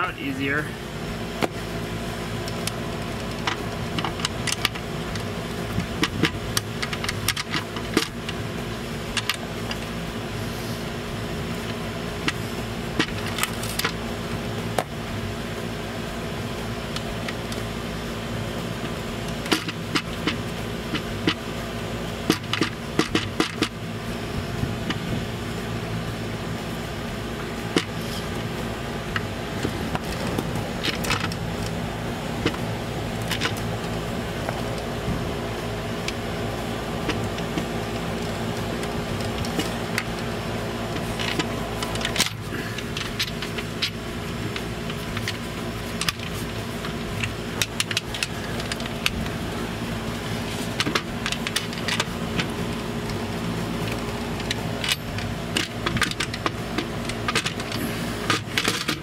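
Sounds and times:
steady mechanical hum: 0.0s - 59.0s.

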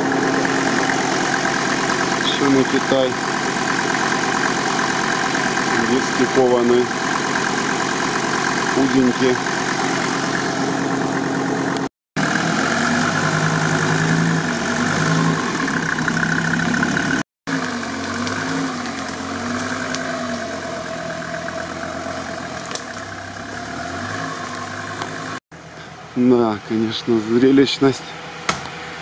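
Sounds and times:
engine running at low revs: 0.0s - 29.0s.

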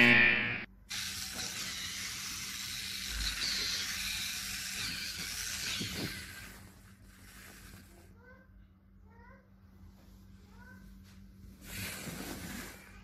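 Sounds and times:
short buzzing tone: 0.0s - 0.7s
toy truck motor whirring: 0.9s - 8.1s, 11.6s - 13.0s.

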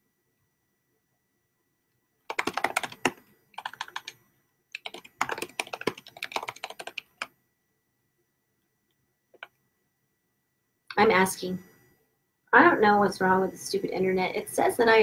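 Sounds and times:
fast typing on keyboard: 2.3s - 4.2s, 4.8s - 7.3s.

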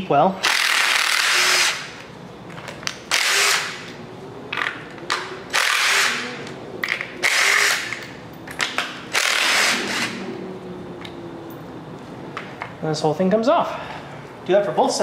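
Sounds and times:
cordless driver spinning out bolts: 0.4s - 1.9s, 3.1s - 3.9s, 5.5s - 6.3s, 7.2s - 8.0s, 9.1s - 10.2s.

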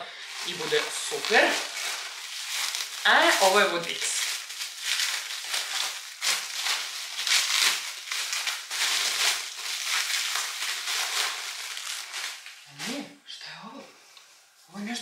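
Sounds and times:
bubble wrap crinkling: 0.0s - 13.2s.

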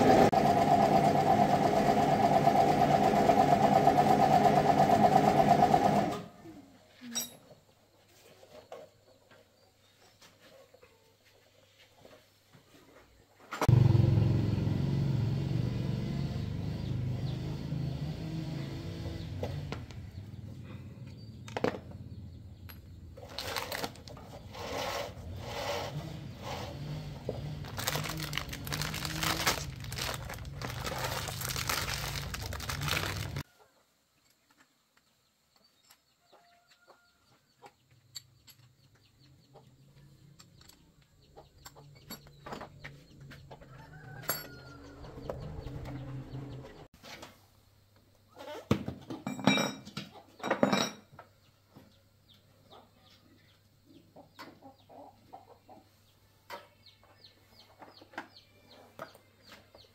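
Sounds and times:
chickens clucking: 40.8s - 46.9s, 52.6s - 59.8s.

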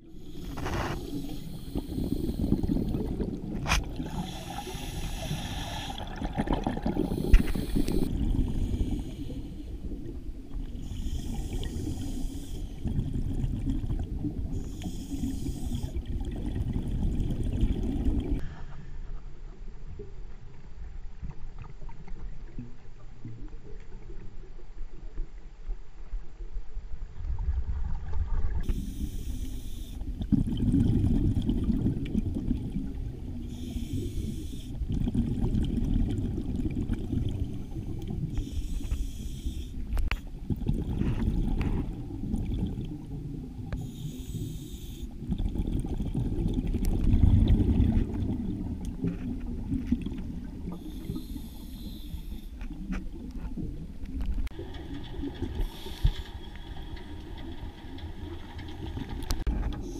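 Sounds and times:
exhaled bubbles gurgling: 0.0s - 18.4s, 30.0s - 59.9s
regulator inhalation hiss: 0.1s - 3.1s, 4.1s - 6.2s, 7.0s - 9.9s, 10.8s - 12.9s, 14.6s - 16.0s, 28.6s - 30.1s, 33.4s - 34.8s, 37.6s - 40.0s, 43.8s - 45.2s, 50.7s - 52.6s, 55.6s - 56.7s.

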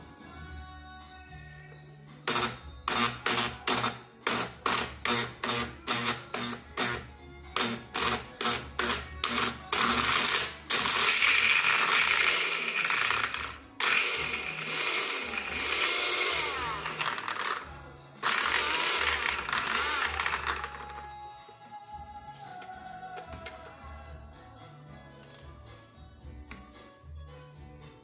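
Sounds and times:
personal blender blending: 10.8s - 17.6s, 18.2s - 21.1s.

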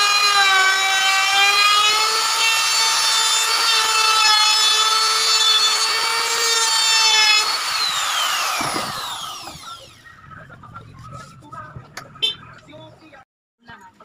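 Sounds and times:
router bit cutting wood: 0.0s - 10.0s
trim router whining: 0.0s - 10.1s.

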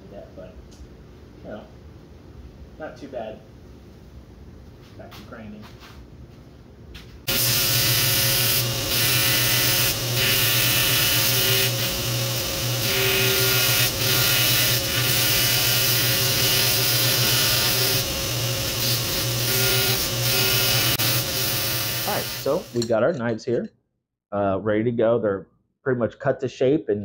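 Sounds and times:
power grinder grinding steel: 7.3s - 22.9s.

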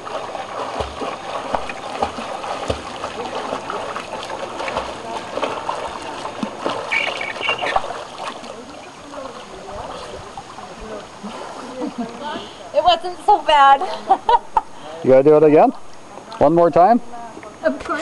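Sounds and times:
swimming splashes: 0.0s - 12.8s.

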